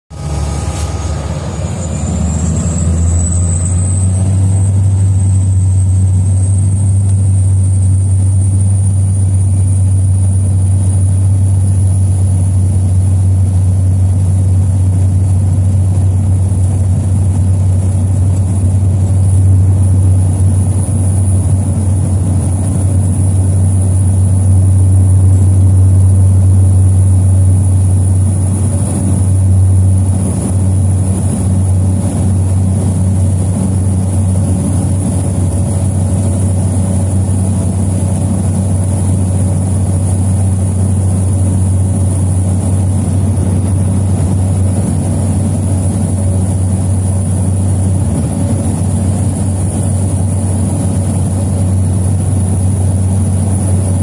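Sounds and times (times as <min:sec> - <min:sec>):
turboprop engine high whine: 0:00.0 - 0:54.0
propeller low drone: 0:00.1 - 0:54.0.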